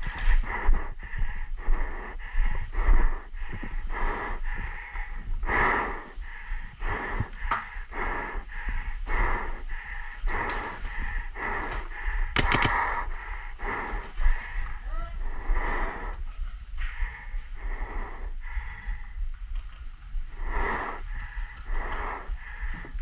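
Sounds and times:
person breathing hard and fast: 0.0s - 23.0s
sharp cracks: 12.3s - 13.1s.

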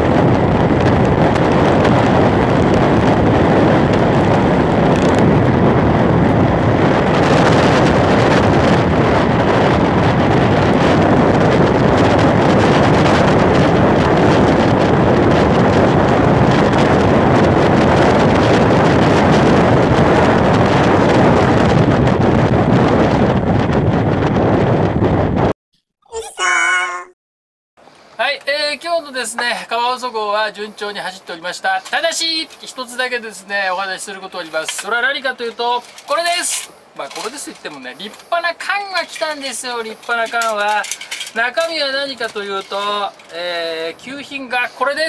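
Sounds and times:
wind buffeting microphone: 0.0s - 25.6s.

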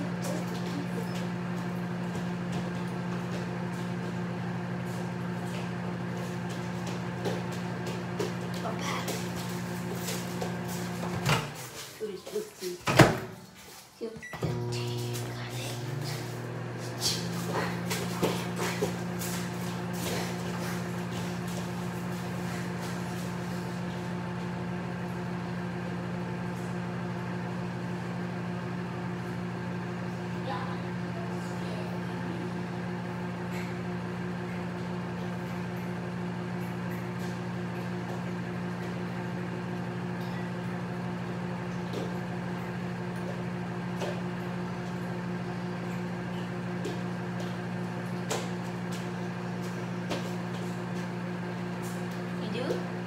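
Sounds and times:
kitchen appliance humming: 0.0s - 53.0s.

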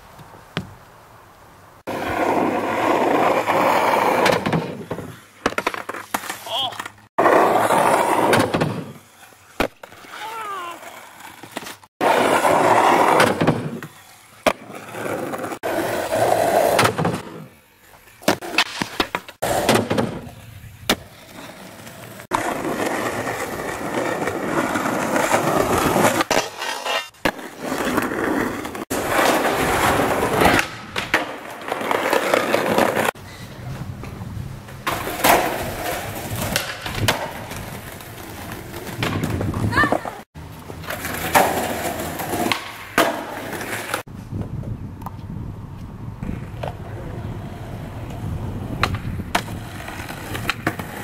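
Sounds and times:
skateboard wheels rolling on asphalt: 0.0s - 51.0s
skateboard clacks popping and landing: 4.1s - 9.0s, 11.3s - 15.5s, 16.5s - 17.5s, 18.2s - 21.5s, 22.3s - 33.1s, 34.8s - 45.2s, 48.0s - 51.0s.

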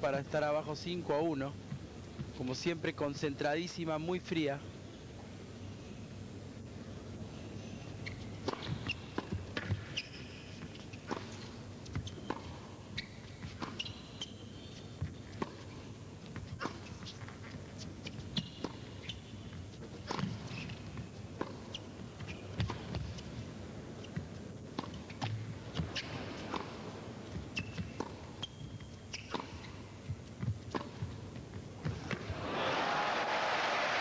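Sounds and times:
shoes squeaking on court: 7.6s - 32.3s
tennis ball bouncing: 8.4s - 14.4s, 15.0s - 17.4s, 18.1s - 32.3s.

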